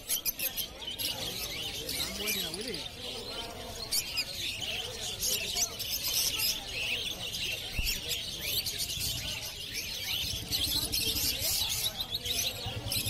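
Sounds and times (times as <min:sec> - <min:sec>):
lovebirds chirping: 0:00.0 - 0:13.0.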